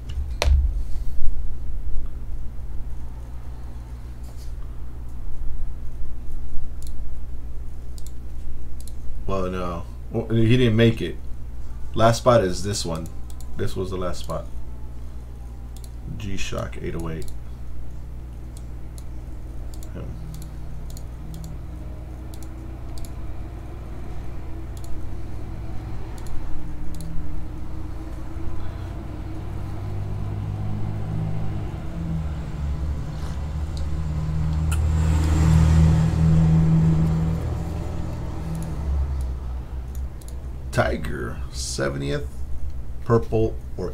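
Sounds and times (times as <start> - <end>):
low rumble: 0.0 - 3.6, 19.3 - 40.7
computer mouse clicks: 6.8 - 7.0, 7.9 - 8.2, 8.8 - 9.0, 15.8 - 16.0, 17.0 - 17.4, 19.7 - 21.6, 22.2 - 23.2, 24.7 - 25.0, 26.1 - 27.2, 38.5 - 39.3, 39.9 - 40.4.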